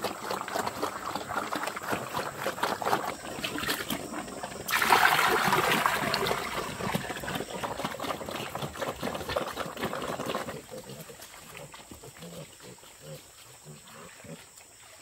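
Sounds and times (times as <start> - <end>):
liquid splashing into trough: 0.0 - 10.6
pigs eating clicks: 0.0 - 14.9.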